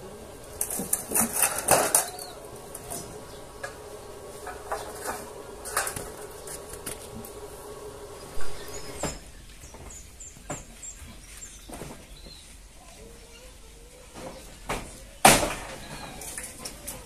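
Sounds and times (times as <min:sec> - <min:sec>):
faint steady hum: 0:00.0 - 0:11.0
sheet metal clinking and clattering: 0:00.4 - 0:07.5.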